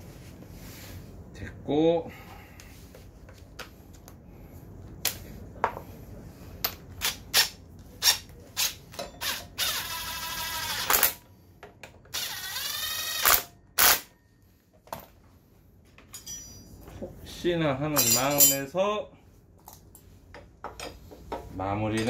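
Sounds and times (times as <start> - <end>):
electric ratchet motor: 8.0 - 11.2, 12.1 - 14.1.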